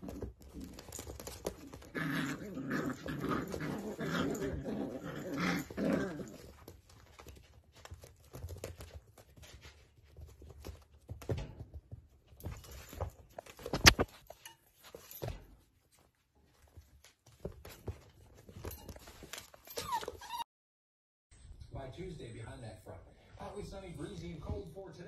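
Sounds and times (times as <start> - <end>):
puppies scrabbling on blankets: 0.0 - 20.4.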